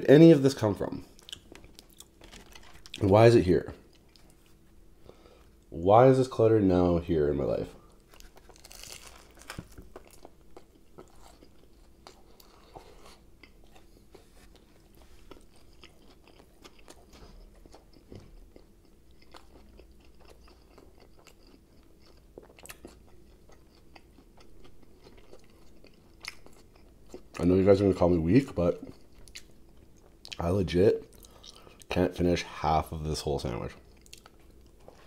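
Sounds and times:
chewing crunches and mouth clicks: 0:01.0 - 0:03.1, 0:03.8 - 0:04.6, 0:07.9 - 0:27.5, 0:28.7 - 0:30.4, 0:31.0 - 0:31.9, 0:33.8 - 0:35.0
person biting into sandwich: 0:08.1 - 0:13.8.

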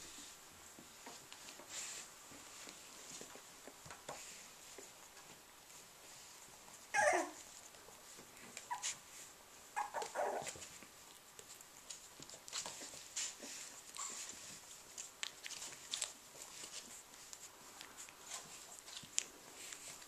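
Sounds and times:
puppies whimpering and squealing: 0:06.9 - 0:07.4, 0:09.7 - 0:10.7.

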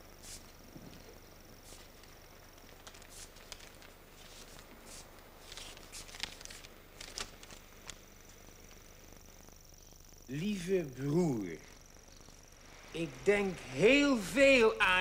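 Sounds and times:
paper rustling and tearing: 0:02.7 - 0:08.0.

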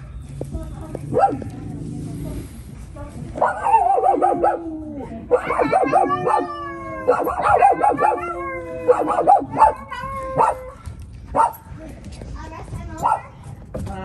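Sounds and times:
dog howling: 0:03.6 - 0:10.8.

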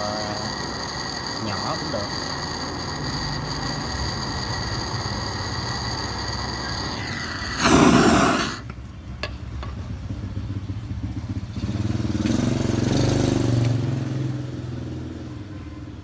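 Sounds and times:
motorbike engine passing by: 0:09.9 - 0:15.9.

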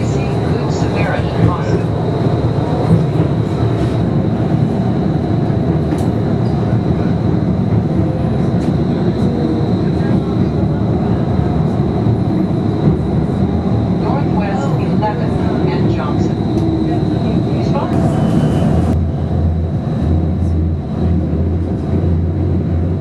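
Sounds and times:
streetcar rumbling on track: 0:00.0 - 0:23.0.

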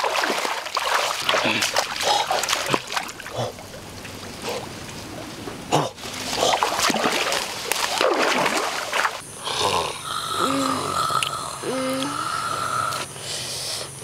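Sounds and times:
muddy water splashing and sloshing: 0:00.0 - 0:09.2.

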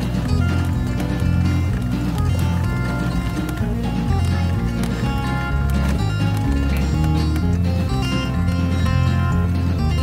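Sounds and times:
background music with bass line: 0:00.0 - 0:10.0.

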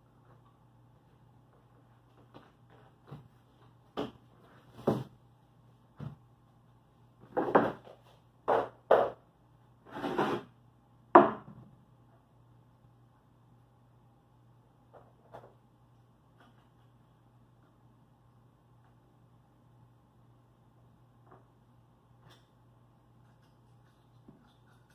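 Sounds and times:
wood panels scraping: 0:09.9 - 0:10.5.

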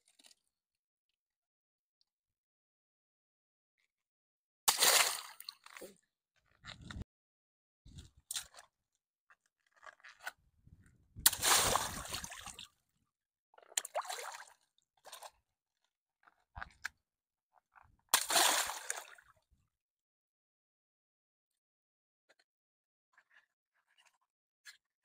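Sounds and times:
water splashing: 0:11.2 - 0:12.6, 0:18.2 - 0:19.1.

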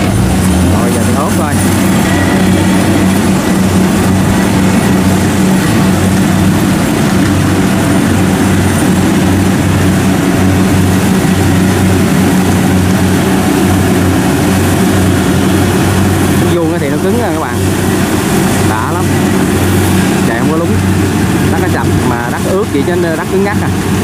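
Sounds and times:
diesel engine running under load: 0:00.0 - 0:24.0.

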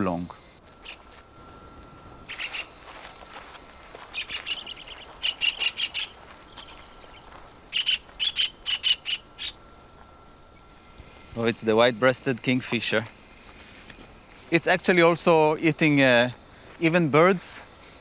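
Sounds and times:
bird calling rapid notes: 0:00.8 - 0:02.9, 0:04.0 - 0:09.7.

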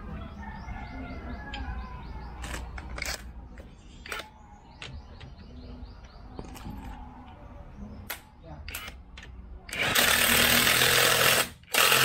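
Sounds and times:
sharp metallic clicks: 0:02.4 - 0:05.4, 0:08.0 - 0:12.0.

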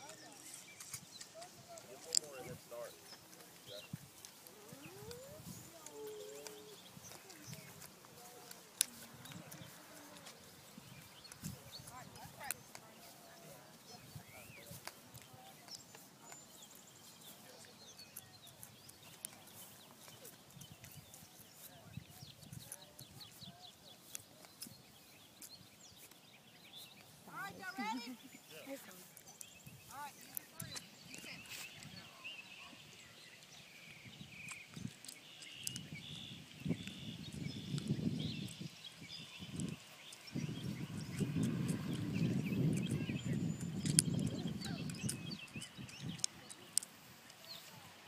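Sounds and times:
soft clicks: 0:34.4 - 0:35.9, 0:43.8 - 0:47.5.

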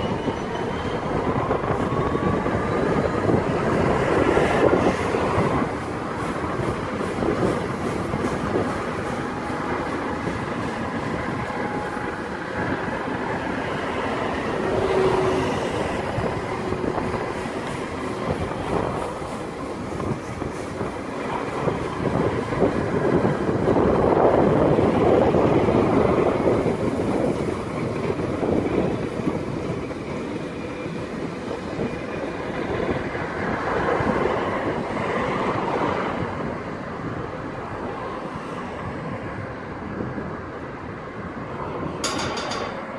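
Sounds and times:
train wheels clattering over rail joints: 0:41.9 - 0:42.9.

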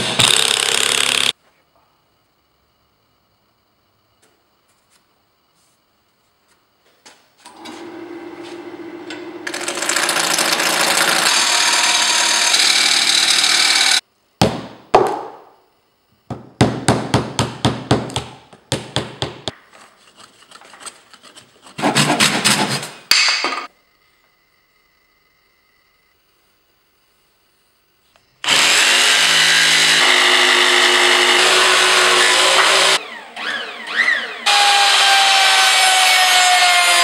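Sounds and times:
wood lathe spinning: 0:07.5 - 0:14.0, 0:28.5 - 0:37.0.

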